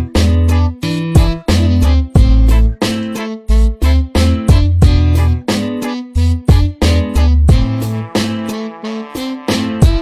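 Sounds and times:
upbeat music with guitar and bass: 0.0 - 10.0.

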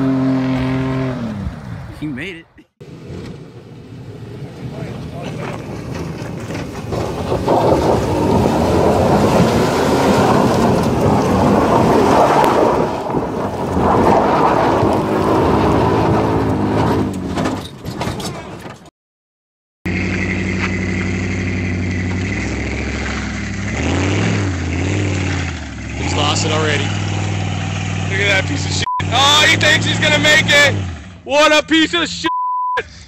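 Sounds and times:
suv engine revving: 0.0 - 1.8, 2.8 - 17.6, 19.9 - 31.3
pickup engine revving: 2.8 - 17.4, 19.9 - 31.2
tyres spinning on gravel: 2.9 - 18.8.

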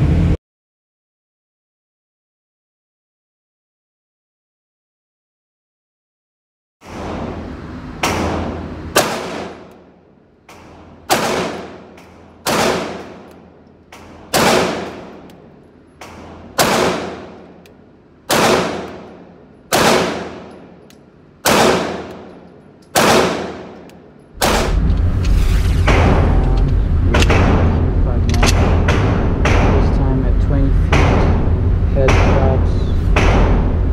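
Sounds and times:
pistol shots echoing indoors: 6.8 - 24.8, 27.2 - 30.0, 30.9 - 33.9.

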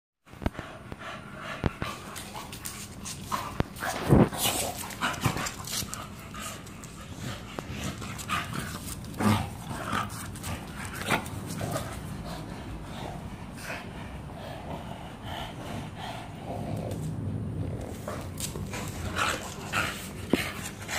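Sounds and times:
dogs growling while play-wrestling: 0.5 - 20.9
dogs scuffling on concrete: 1.7 - 12.5, 17.8 - 20.9.

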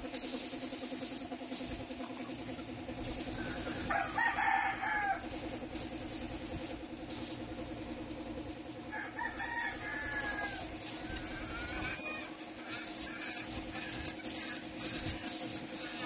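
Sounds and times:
air spray gun hissing: 0.0 - 8.3, 9.7 - 12.0, 12.6 - 16.0
steady hum: 0.0 - 16.0
rooster crowing: 3.4 - 5.4, 8.9 - 14.0.

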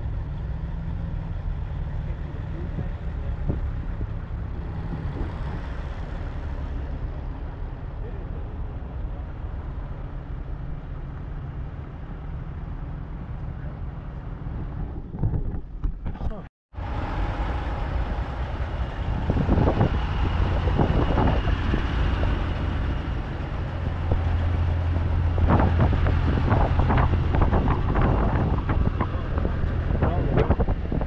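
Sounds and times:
diesel trucks idling: 0.0 - 14.5, 16.8 - 31.0.

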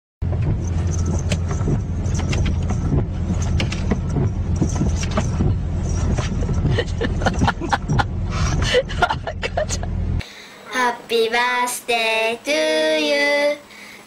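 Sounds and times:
car engine and road noise: 0.2 - 10.2
wipers squeaking on wet glass: 0.3 - 7.1.

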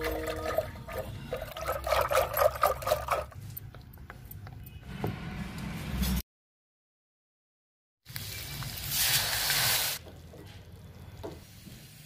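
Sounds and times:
liquid pouring and trickling: 0.0 - 3.7.

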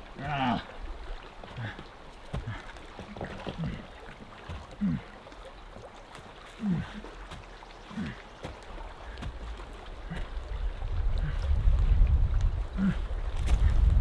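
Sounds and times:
man grunting with effort: 0.2 - 0.8, 4.8 - 5.1, 6.6 - 7.1, 12.8 - 13.1
footsteps crunching on twigs: 7.2 - 10.4, 13.3 - 14.0
wind rumble on microphone: 9.1 - 14.0.

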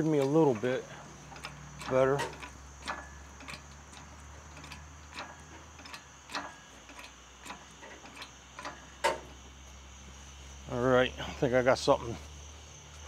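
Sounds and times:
light clicks and knocks on metal: 0.0 - 9.4.

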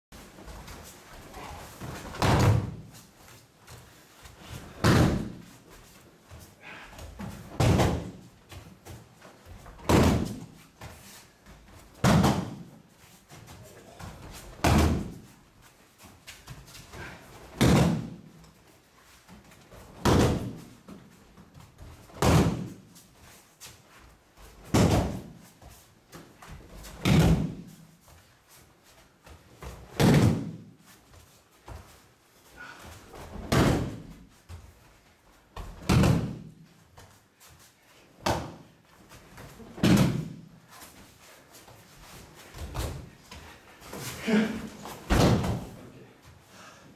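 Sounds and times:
heavy thuds on padded mat: 45.0 - 45.7.

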